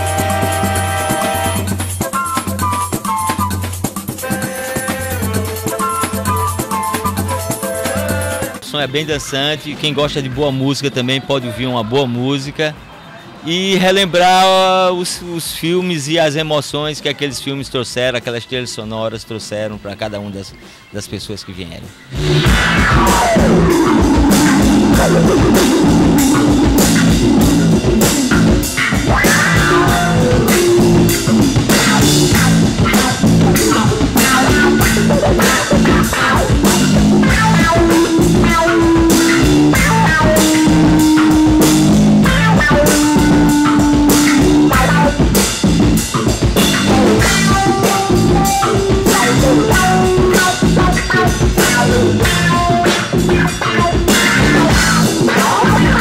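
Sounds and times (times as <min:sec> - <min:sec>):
drum kit: 0:00.0 - 0:08.7, 0:21.8 - 0:56.0
electric guitar: 0:22.1 - 0:56.0.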